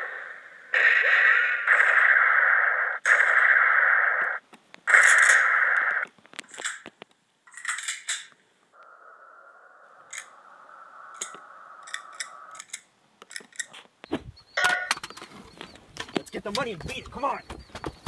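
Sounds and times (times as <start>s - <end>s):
faint steady whine: 8.4s - 13.2s.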